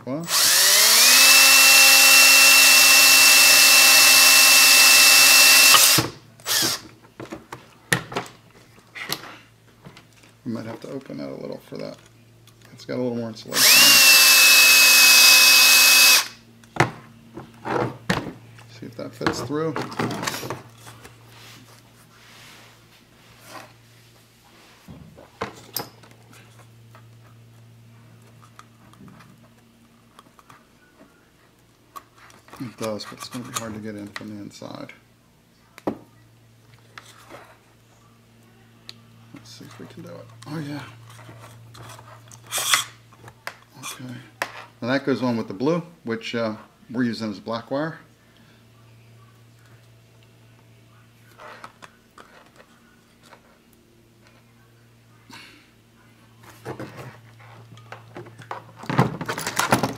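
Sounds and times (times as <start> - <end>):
cordless drill whining: 0.2 - 6.8, 13.5 - 16.4
drill handling clicks: 0.3 - 6.8.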